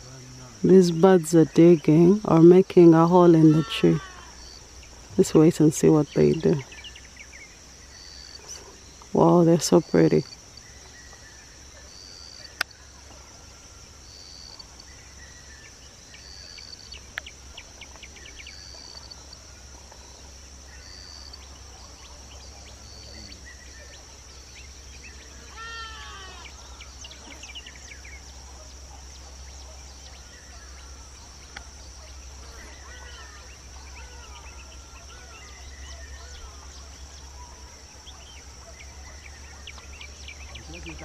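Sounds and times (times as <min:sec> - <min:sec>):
insects droning: 0:00.0 - 0:41.0.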